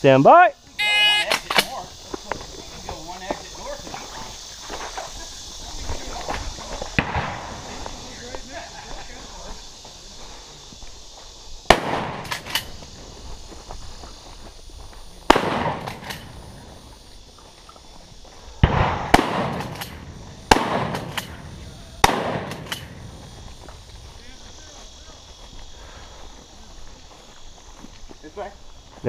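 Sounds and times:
shotgun shots: 7.0 - 7.6, 11.7 - 12.7, 15.3 - 16.3, 18.6 - 21.4, 22.0 - 23.0.

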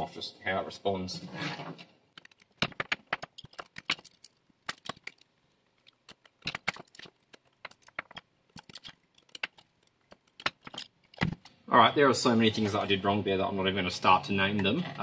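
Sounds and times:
clicks and rattles of handled wires: 2.1 - 11.6.

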